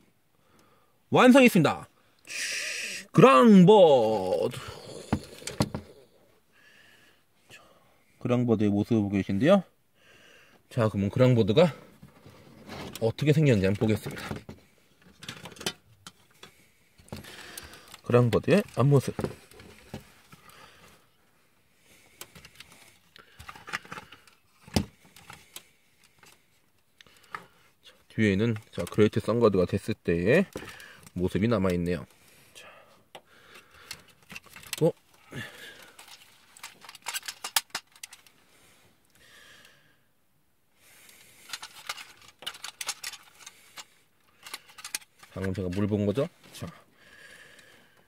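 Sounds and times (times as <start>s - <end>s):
plastic toy clicking and knocking: 36.0s - 38.2s, 41.5s - 43.5s.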